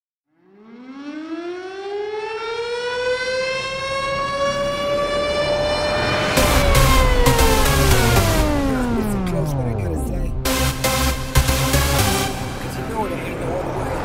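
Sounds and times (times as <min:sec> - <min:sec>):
air raid siren winding up: 0:00.3 - 0:09.8
dance music drum beat: 0:06.4 - 0:12.8.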